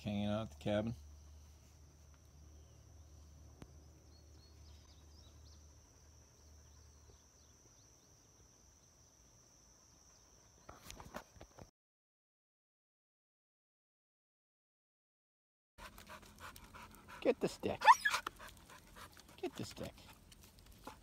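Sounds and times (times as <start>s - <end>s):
crickets chirping: 0.0s - 11.7s.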